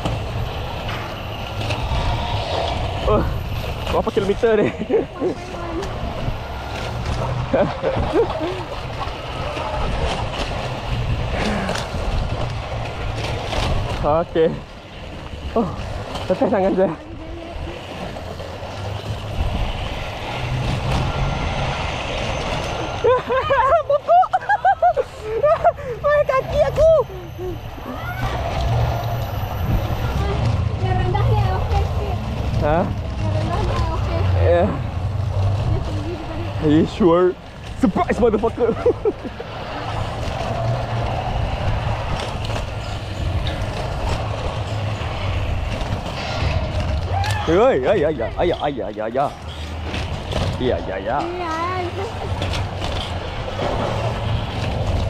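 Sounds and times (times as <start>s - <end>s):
zip line trolley rolling on rail: 0.0s - 55.0s
rider crying out: 25.2s - 30.1s, 46.9s - 47.8s.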